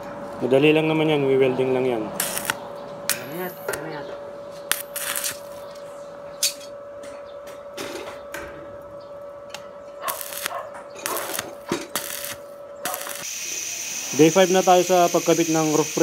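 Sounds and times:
steady hum: 0:00.0 - 0:16.0
arc welding crackling and sizzling: 0:01.9 - 0:05.9, 0:08.8 - 0:16.0.

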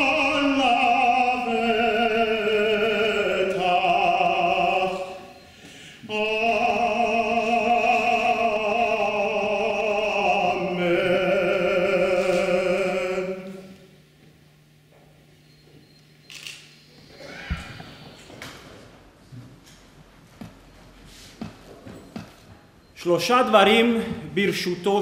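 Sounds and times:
man singing liturgical chant: 0:00.0 - 0:05.4, 0:06.0 - 0:13.8, 0:23.0 - 0:25.0.

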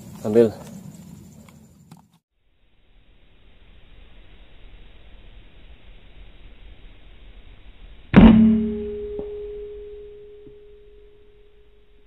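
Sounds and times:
rifle shot with metallic ring: 0:08.2 - 0:11.0.

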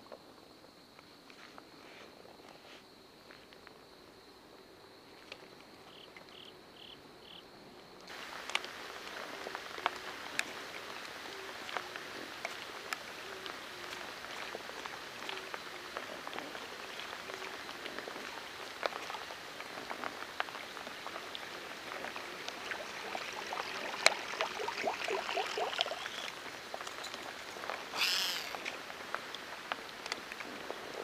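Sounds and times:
rain pattering on water: 0:08.0 - 0:31.0.

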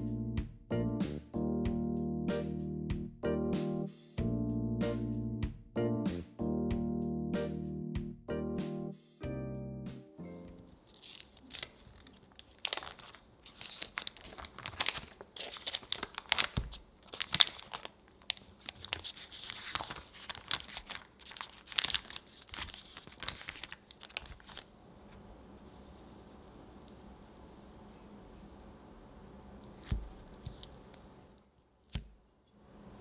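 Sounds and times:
paper wrapper crinkling: 0:10.7 - 0:25.2, 0:29.6 - 0:31.0.

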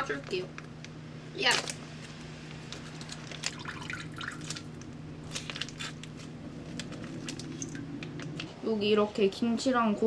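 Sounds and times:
brine dripping into sink: 0:03.4 - 0:04.9.

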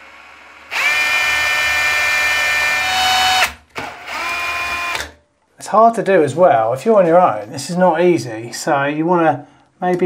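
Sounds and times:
cordless drill whining: 0:00.0 - 0:05.2.

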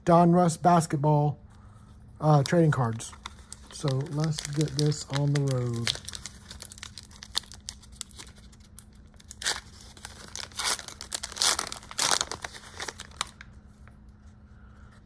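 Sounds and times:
card pack wrapper tearing: 0:02.4 - 0:13.4.

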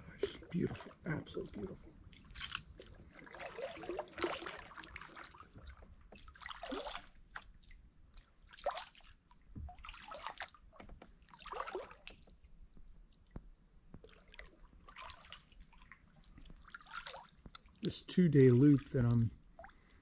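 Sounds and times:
kayak paddle strokes in water: 0:02.8 - 0:17.7.

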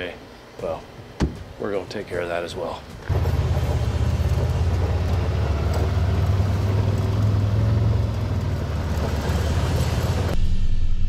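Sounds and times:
vehicle engine running: 0:03.1 - 0:10.4.

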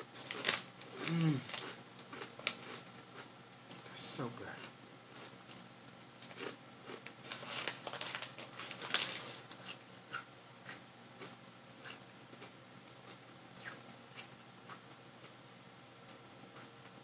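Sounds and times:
chip bag crinkling: 0:00.1 - 0:03.9, 0:04.6 - 0:10.3
chips crunching: 0:00.2 - 0:03.9, 0:04.6 - 0:15.4.

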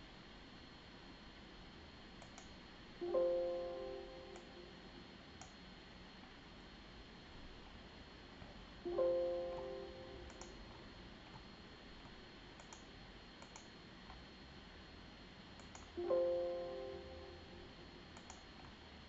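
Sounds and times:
light mouse clicks: 0:02.2 - 0:02.6, 0:05.4 - 0:05.6, 0:09.6 - 0:10.7, 0:12.0 - 0:13.7, 0:15.6 - 0:16.0, 0:18.1 - 0:18.8.

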